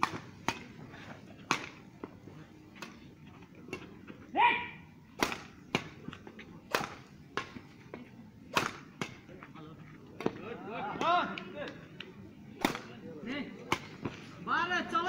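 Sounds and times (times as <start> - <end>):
rackets striking shuttlecock: 0.0 - 0.8, 1.4 - 1.8, 5.2 - 7.6, 8.5 - 9.3, 12.6 - 13.0, 13.6 - 14.2
person shouting: 4.3 - 4.9.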